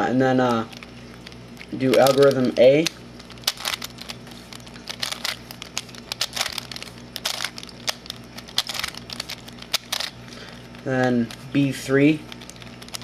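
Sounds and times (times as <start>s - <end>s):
plastic puzzle clicking: 4.9s - 10.1s.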